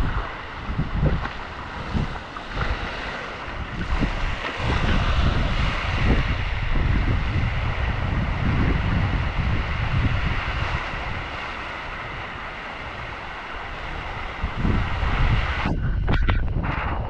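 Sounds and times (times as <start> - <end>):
wind buffeting microphone: 0.0 - 17.0
waterfall spray hissing: 8.6 - 15.8.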